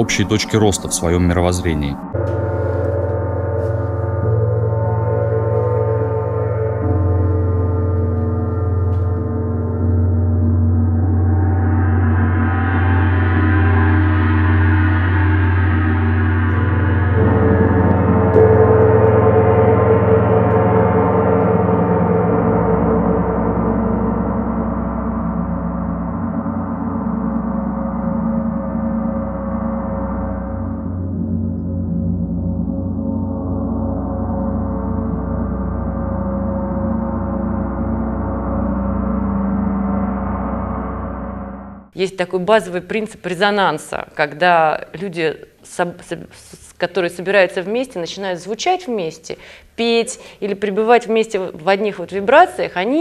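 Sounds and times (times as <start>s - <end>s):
gongs ringing: 0.0s - 42.0s.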